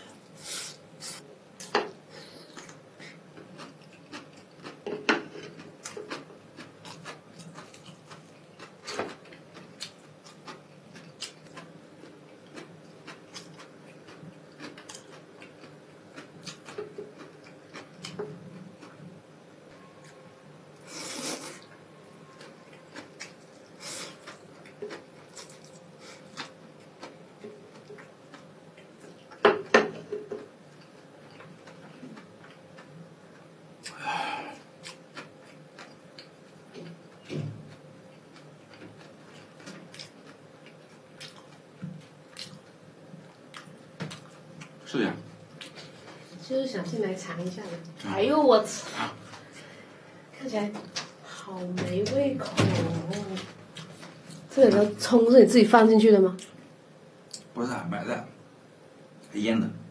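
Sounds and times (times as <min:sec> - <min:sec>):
wet chewing clicks: 0:42.3 - 0:44.8.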